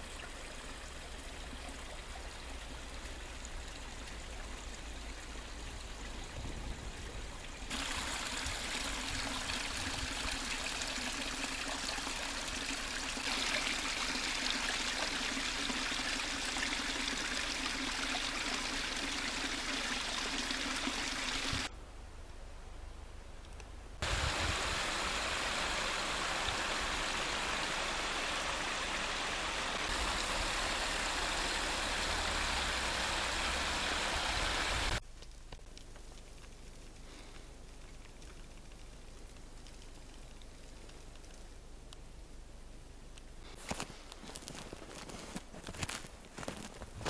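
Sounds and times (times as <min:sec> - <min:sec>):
stream water rushing: 0:07.7 - 0:21.7, 0:24.0 - 0:35.0.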